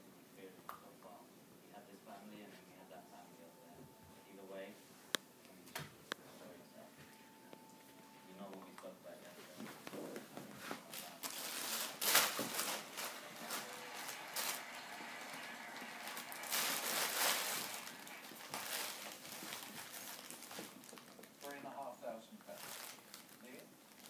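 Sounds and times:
plastic bag crinkling: 0:10.8 - 0:24.0.

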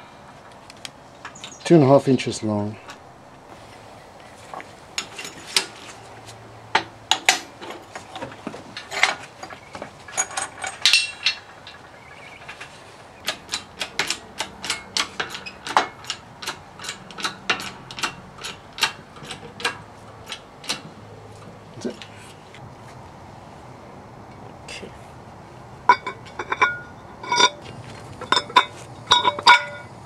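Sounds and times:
sharp metallic clicks: 0:10.2 - 0:20.9.

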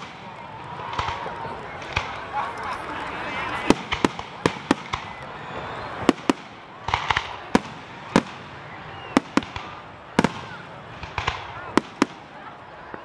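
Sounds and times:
fireworks pops: 0:00.0 - 0:08.4, 0:09.0 - 0:13.0
fireworks bangs: 0:00.0 - 0:13.0.

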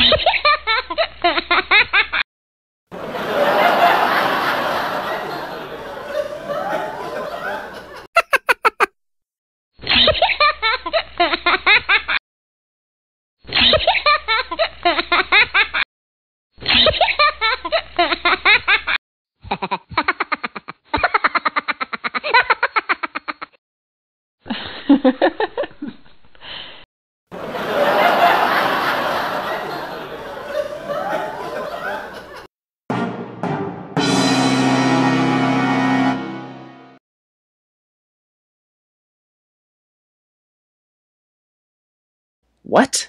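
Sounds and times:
canned giggling laughter: 0:03.0 - 0:08.9, 0:09.8 - 0:12.2, 0:16.6 - 0:23.6, 0:27.4 - 0:32.5.

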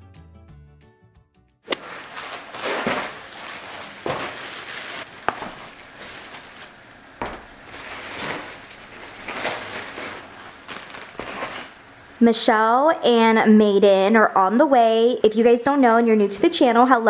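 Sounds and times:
rustling and handling noises: 0:01.7 - 0:11.8.

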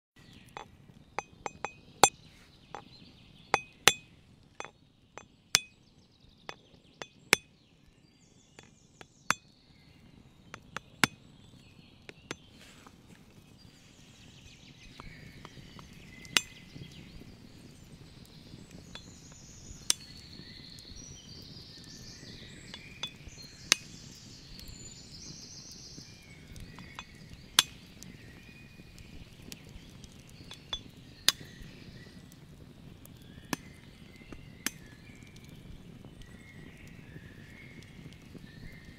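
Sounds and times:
knife tapping eggshell: 0:00.6 - 0:01.8, 0:03.6 - 0:04.0, 0:10.6 - 0:11.2.

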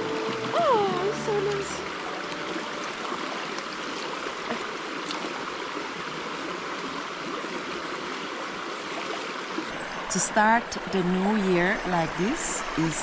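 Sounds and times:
river rushing over stones: 0:00.0 - 0:10.2.

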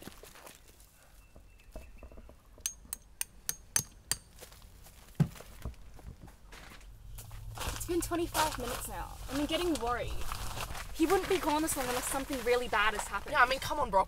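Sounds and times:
hammer clinking on metal peg: 0:02.6 - 0:04.3.

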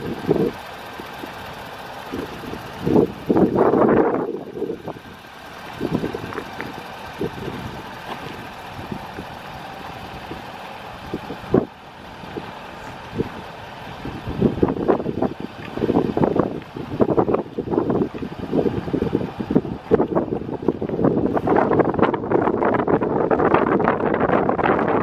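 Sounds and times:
faint steady whine: 0:00.0 - 0:25.0
pickup truck idling: 0:00.0 - 0:25.0
footsteps on gravel: 0:05.6 - 0:08.5.

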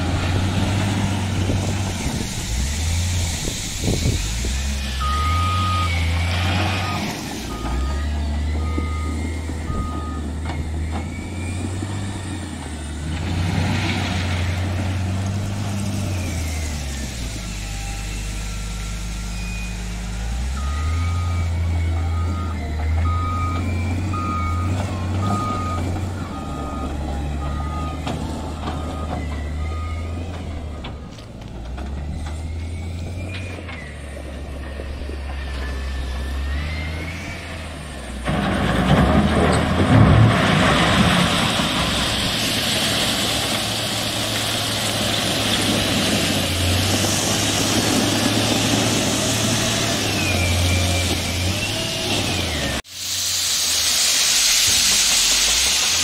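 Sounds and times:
diesel engine working: 0:00.0 - 0:56.0
reversing alarm beeping: 0:04.9 - 0:12.4, 0:16.2 - 0:30.8, 0:32.1 - 0:34.1.

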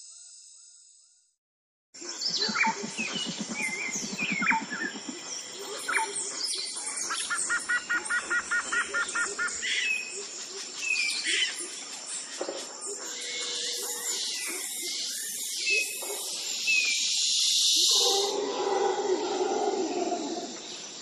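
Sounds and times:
small birds chirping: 0:02.0 - 0:18.5.

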